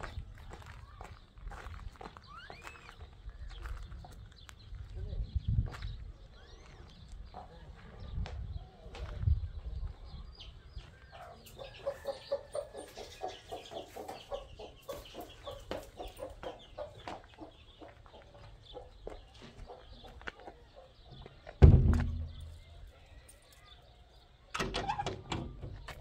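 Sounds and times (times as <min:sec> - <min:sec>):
chickens clucking: 0:06.6 - 0:26.0.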